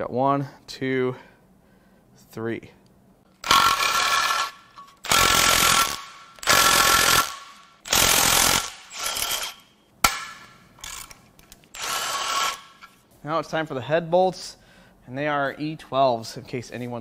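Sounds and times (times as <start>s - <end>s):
impact wrench hammering: 3.4s - 11.1s, 11.8s - 12.9s.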